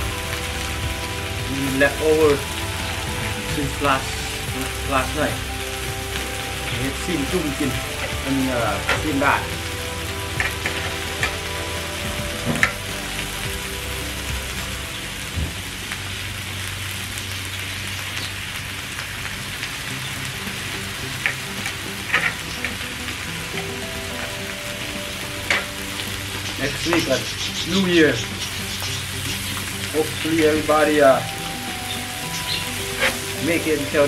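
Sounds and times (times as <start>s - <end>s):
meat sizzling on grill plate: 0.0s - 34.0s.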